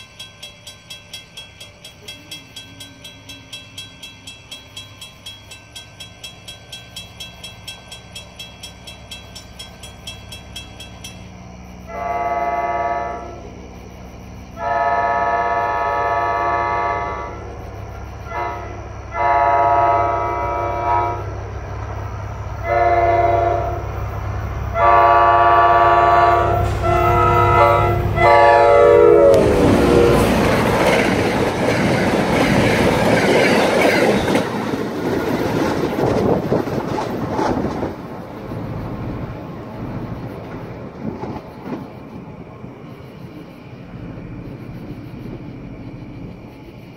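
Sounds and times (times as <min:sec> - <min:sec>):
crossing bell ringing: 0:00.0 - 0:13.5
diesel engine rumble: 0:00.0 - 0:46.9
train wheels rumbling on rail: 0:00.0 - 0:46.9
train air horn blasts: 0:11.8 - 0:13.6, 0:14.6 - 0:17.5, 0:18.2 - 0:21.4, 0:22.6 - 0:23.9, 0:24.7 - 0:30.6.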